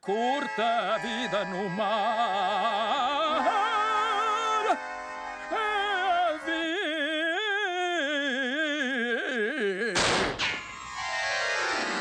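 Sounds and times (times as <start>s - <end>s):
man singing long note: 0.0s - 10.0s
pistol shot: 10.0s - 10.7s.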